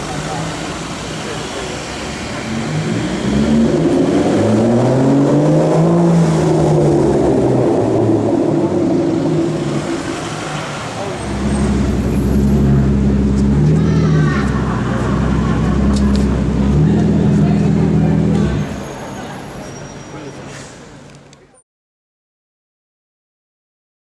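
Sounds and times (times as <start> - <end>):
car exhaust accelerating: 0.0 - 18.9
deep exhaust rumble: 1.9 - 19.1.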